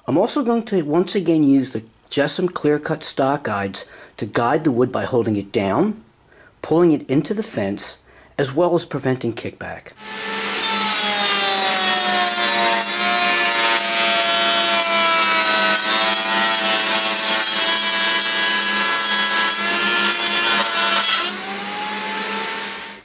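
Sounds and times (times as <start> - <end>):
router whining cutting wood: 10.0 - 23.0.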